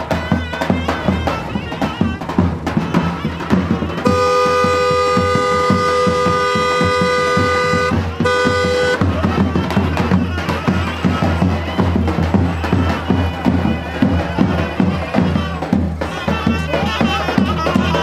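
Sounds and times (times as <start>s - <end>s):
music: 0.0s - 18.0s
car horn blast: 4.0s - 9.2s.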